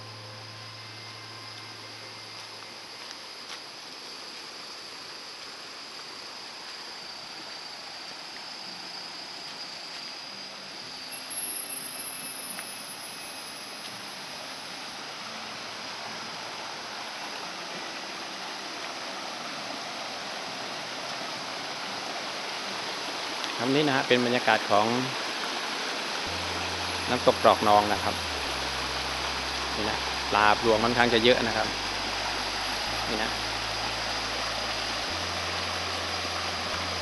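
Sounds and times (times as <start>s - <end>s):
stream water running over rocks: 0.0s - 37.0s.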